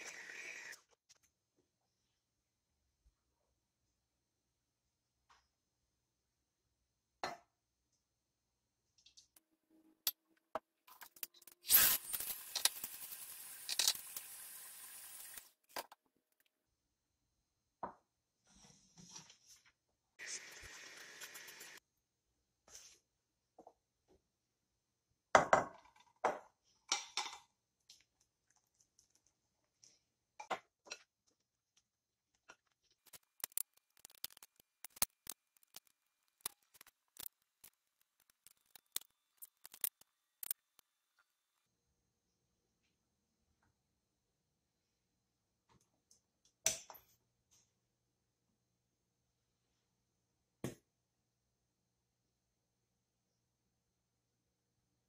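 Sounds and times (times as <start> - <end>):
utensils clicking: 33.0 - 40.8.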